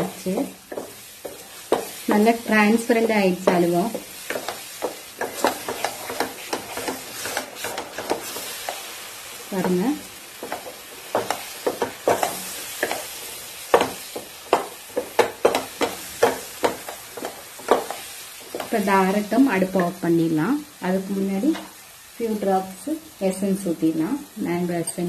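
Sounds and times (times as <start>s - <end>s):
spatula scraping a pan: 0.6s - 2.2s, 3.5s - 18.9s.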